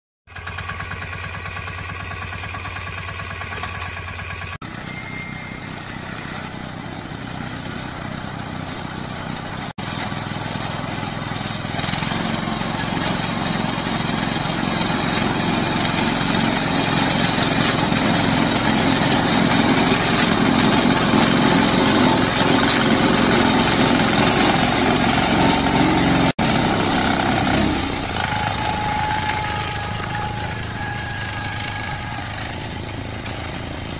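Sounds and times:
small engine running: 0.3s - 33.9s.

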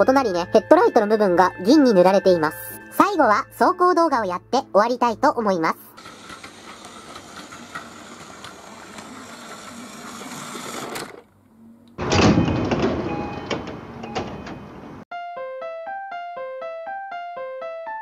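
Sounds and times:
piano music: 0.0s - 6.0s, 12.2s - 18.0s
toy train motor whirring: 5.9s - 11.2s
toy train wheels rattling: 6.0s - 11.2s.

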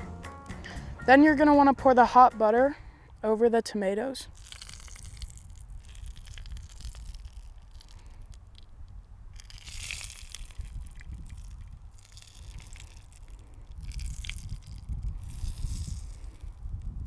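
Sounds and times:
hot butter dripping and hissing: 4.3s - 8.7s, 9.4s - 17.0s.

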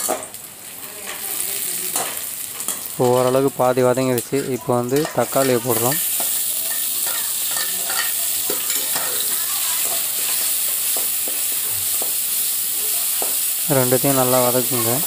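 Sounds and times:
vegetables sizzling in hot oil: 0.0s - 15.0s
metal spoon scraping pan: 4.3s - 12.1s.

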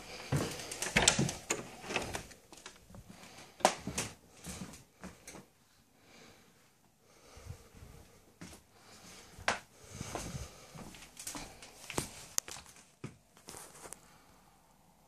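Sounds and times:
footsteps on wooden floor: 0.0s - 5.3s.

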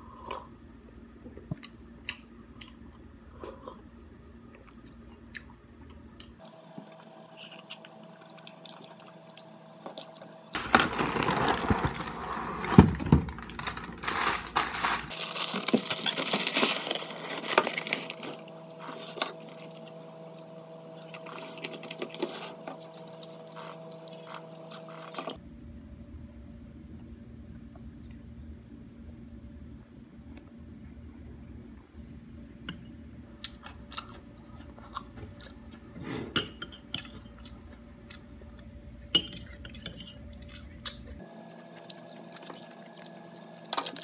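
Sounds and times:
cornflakes pouring into mug: 10.6s - 12.8s, 13.4s - 18.2s
foil bag crinkling: 10.6s - 19.1s.

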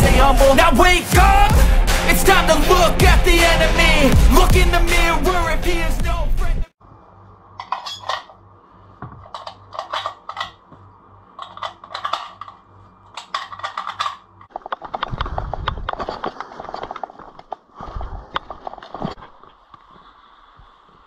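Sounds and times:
metal cartridges clinking: 7.6s - 8.4s, 9.2s - 10.6s, 11.4s - 15.1s.

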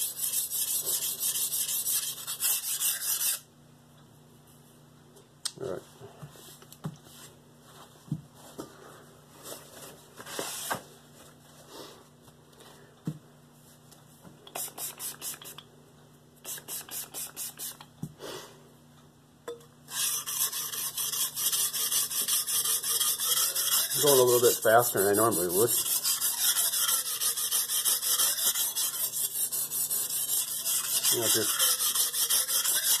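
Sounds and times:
knife blade on whetstone: 19.9s - 33.0s.

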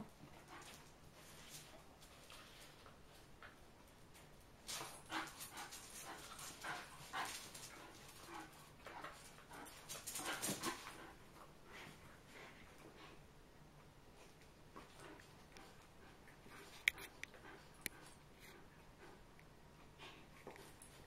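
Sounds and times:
dogs play-fighting noises: 0.1s - 21.0s
dogs scuffling: 4.6s - 11.2s.

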